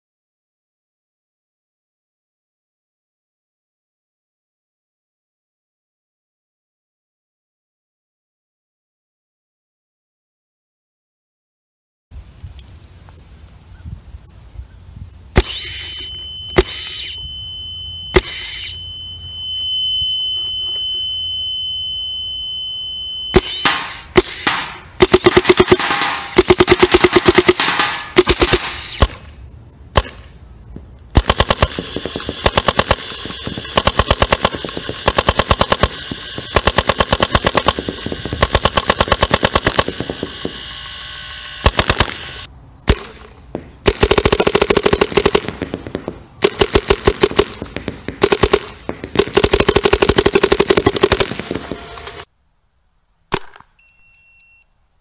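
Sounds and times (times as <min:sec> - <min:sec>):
paintball marker rapid firing: 0:23.4 - 0:29.2, 0:31.1 - 0:40.9, 0:41.6 - 0:52.2.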